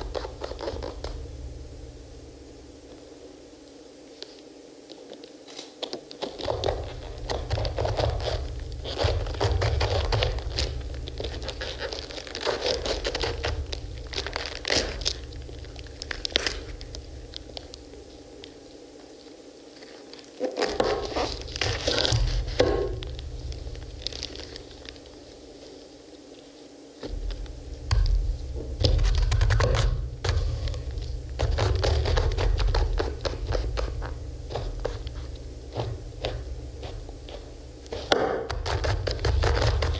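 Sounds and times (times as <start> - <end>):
deep low rumble: 6.8 - 18.1, 21.1 - 25.2, 27.1 - 37.8.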